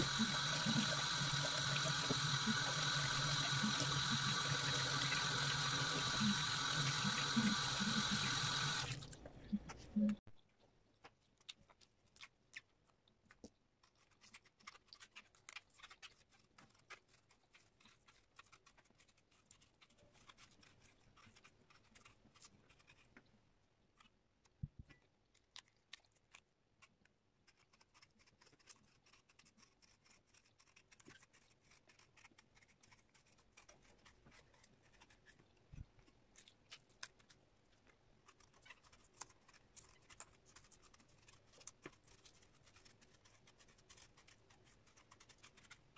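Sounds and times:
knife scraping fruit skin: 13.8 - 23.2, 26.3 - 35.5, 38.2 - 45.9.

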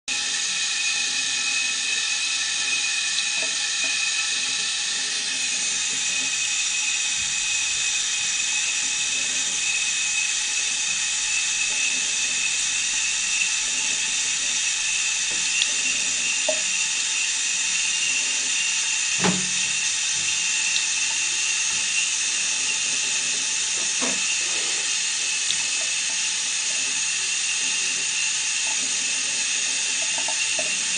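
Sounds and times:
tap water running into sink: 0.1 - 30.9
cat lapping water: 19.8 - 30.9.

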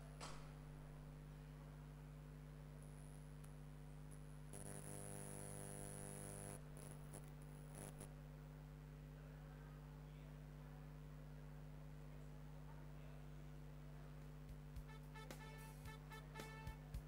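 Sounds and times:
faint electrical hum: 0.0 - 17.0
electrical buzz: 4.5 - 8.2
high whine: 4.5 - 8.2.

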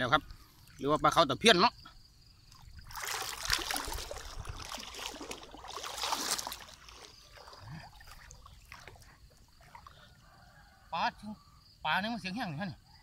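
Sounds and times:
water splashing and sloshing: 2.3 - 10.2.

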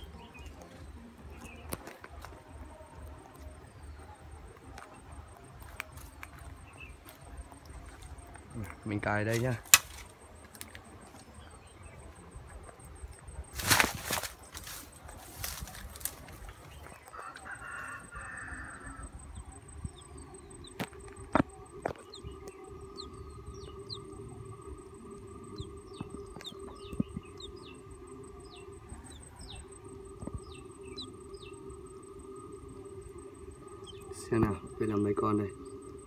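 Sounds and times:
insects droning: 0.0 - 36.0
high falling bird chirps: 21.5 - 36.0.

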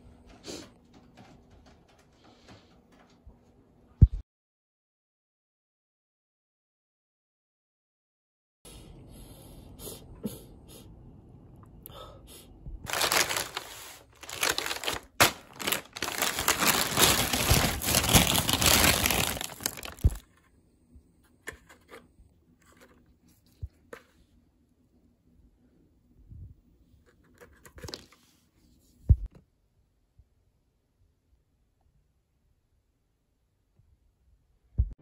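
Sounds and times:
plastic bag crinkling: 12.9 - 20.2.

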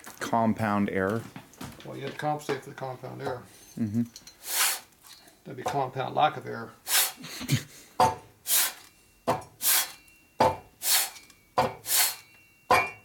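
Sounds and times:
metal rasping on sandpaper: 4.4 - 4.9, 8.5 - 8.8, 9.6 - 10.0, 10.8 - 11.2, 11.8 - 12.2.

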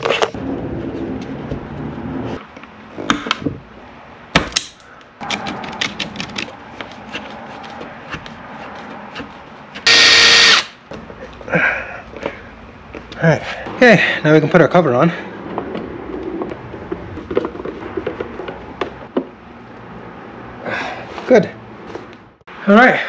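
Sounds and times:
cordless drill driving screw: 9.9 - 10.7.

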